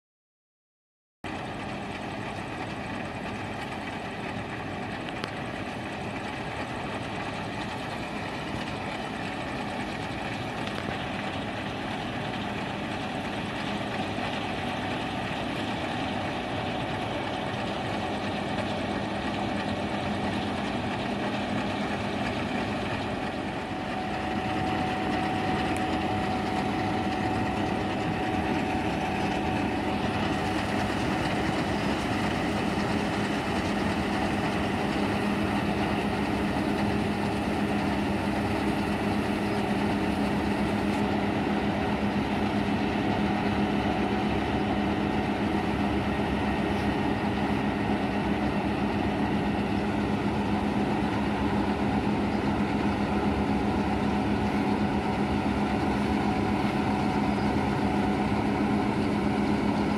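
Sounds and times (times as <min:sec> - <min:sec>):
combine harvester machinery running: 0:01.3 - 0:59.9
steady higher tone: 0:22.4 - 0:44.8.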